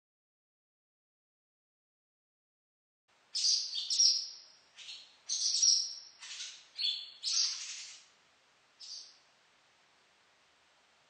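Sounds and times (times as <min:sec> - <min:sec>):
swallows twittering: 0:03.4 - 0:08.1, 0:08.8 - 0:09.2.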